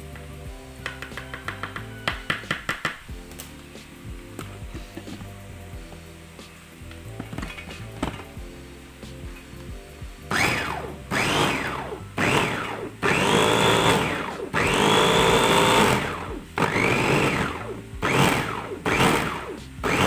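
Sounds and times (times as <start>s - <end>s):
food chopper motor whining: 10.3s - 20.0s.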